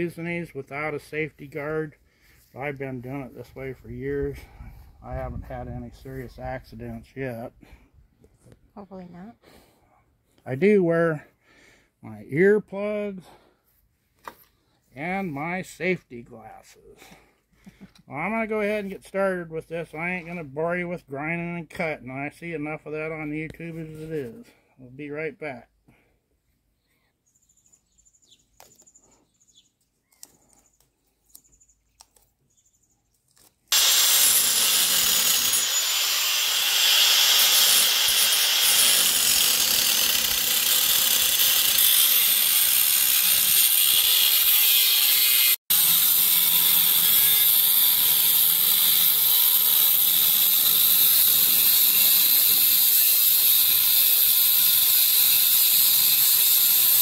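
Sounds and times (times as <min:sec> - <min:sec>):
angle grinder cutting steel: 0:33.7 - 0:57.0.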